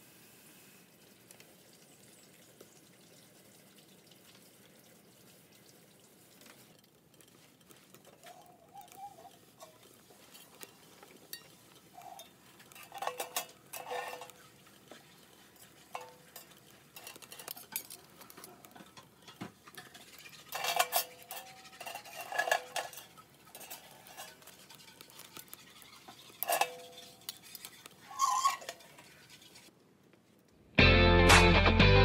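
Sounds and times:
metal clinking and scraping: 0:06.4 - 0:29.7.

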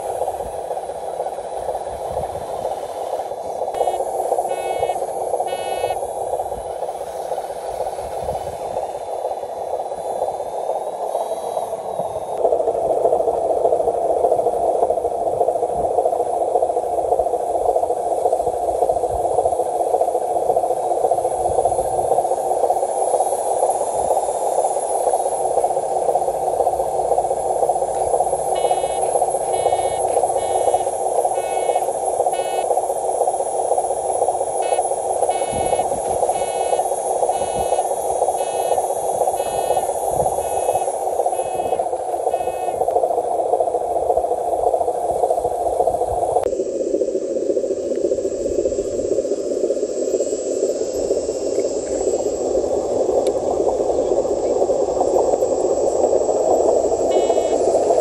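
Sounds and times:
repeating reversing beep: 0:03.8 - 0:06.0, 0:28.5 - 0:30.8, 0:57.1 - 0:57.6.

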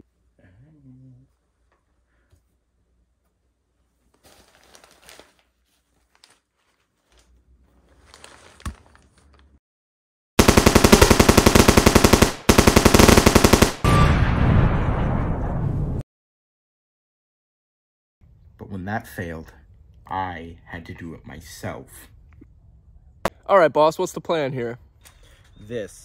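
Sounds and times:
automatic machine-gun fire: 0:10.4 - 0:14.0.

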